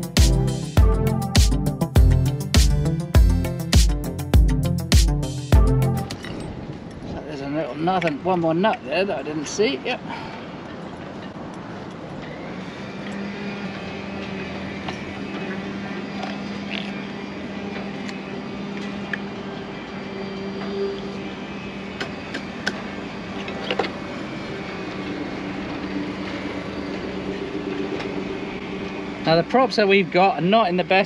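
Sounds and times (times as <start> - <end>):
mechanical hum: 9.2 - 31.0.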